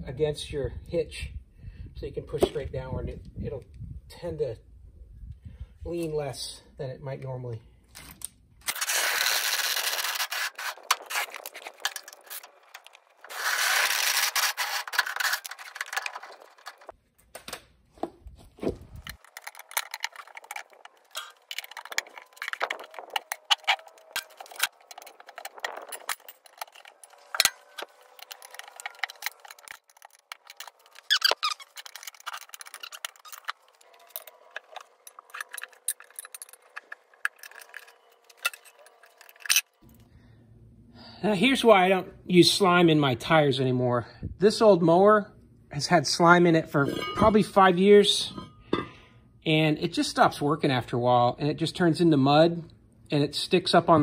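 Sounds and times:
tire spoons scraping and clicking: 7.9 - 17.0, 18.5 - 40.0, 46.7 - 49.0.

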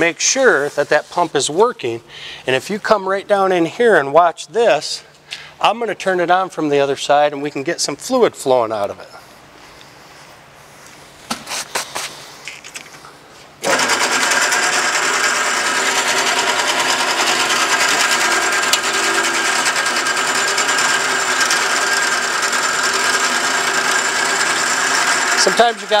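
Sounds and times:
band saw running: 13.6 - 26.0.

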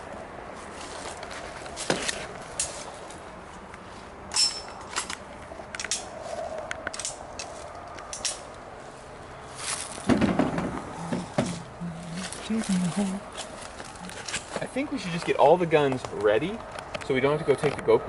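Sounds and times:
footsteps through dry grass: 0.0 - 4.2, 8.7 - 10.1, 10.9 - 14.7
rustling: 0.5 - 4.1, 8.8 - 16.2
clicks of objects handled: 4.3 - 8.6.

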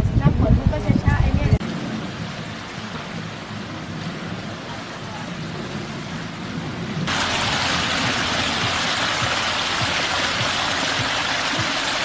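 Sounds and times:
ambient noise: 1.6 - 12.0
water gushing onto rocks: 7.0 - 12.0.

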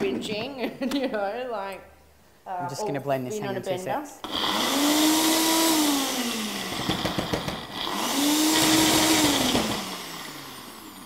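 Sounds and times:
blender motor spinning: 4.2 - 11.0.

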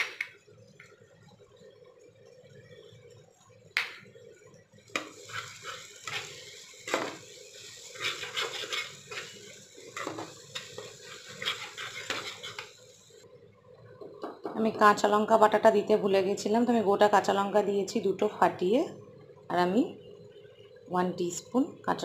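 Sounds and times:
metal spatula scraping a pan: 4.9 - 12.8.

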